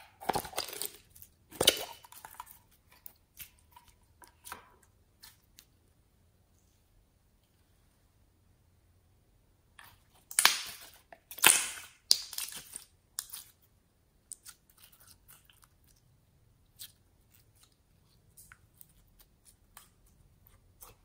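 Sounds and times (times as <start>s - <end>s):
slime crackling and squelching: 0.0s - 5.7s, 9.8s - 13.7s, 14.3s - 21.0s.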